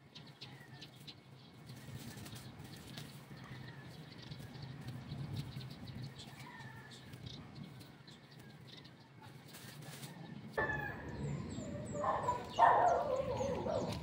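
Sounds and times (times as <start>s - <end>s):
small birds chirping: 0.0s - 14.0s
chickens calling: 9.2s - 14.0s.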